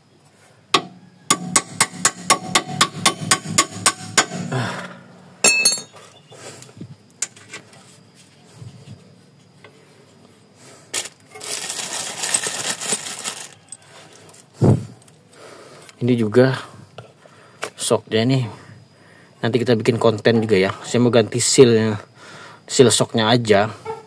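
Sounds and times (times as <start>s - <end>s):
metal clink with ring: 5.4s - 6.2s
scraping rattling handling noise: 10.9s - 15.1s.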